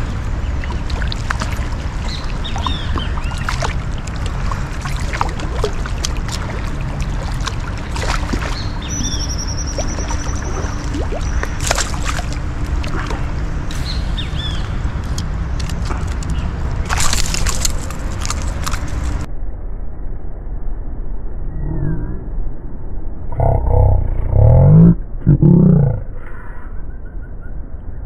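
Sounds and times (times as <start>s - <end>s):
birds chirping: 0.0s - 19.3s
fish splashing in water: 0.0s - 19.3s
rushing river water: 0.0s - 19.3s
bird trill: 8.4s - 12.0s.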